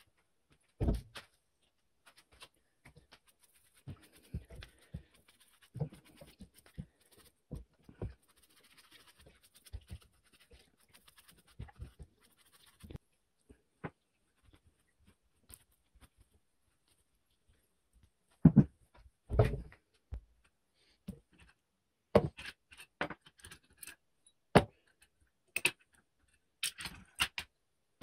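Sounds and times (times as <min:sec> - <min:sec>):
brush scrubbing metal parts: 0:02.1 - 0:13.0.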